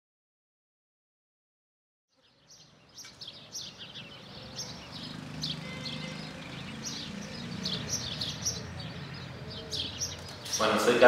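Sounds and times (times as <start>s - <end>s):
small birds chirping: 2.2s - 11.0s.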